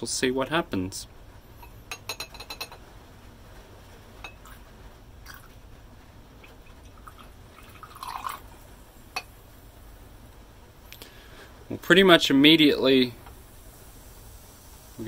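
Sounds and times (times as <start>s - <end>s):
glass clinks: 1.6s - 2.8s
liquid trickling into beakers: 6.4s - 9.3s.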